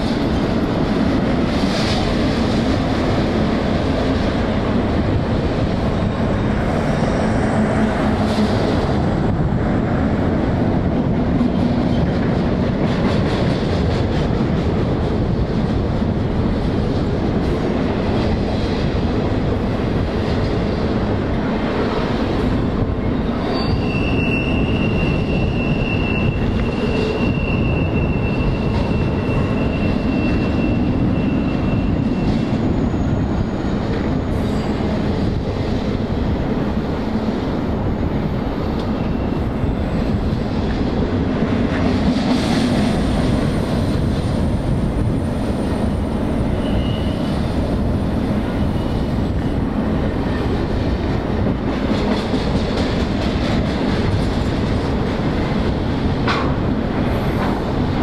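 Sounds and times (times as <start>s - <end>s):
freight train wheels rumbling: 0.0s - 58.0s
high-pitched wheel squeal: 23.2s - 33.2s, 46.6s - 47.4s.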